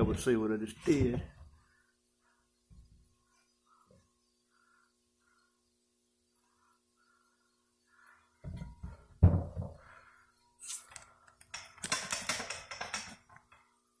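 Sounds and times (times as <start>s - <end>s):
clattering and rubbing: 10.6s - 13.7s.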